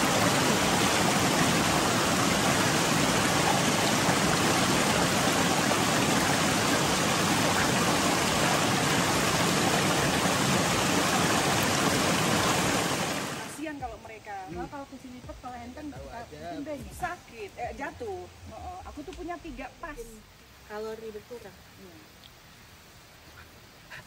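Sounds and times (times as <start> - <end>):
rushing water: 0.0 - 14.1.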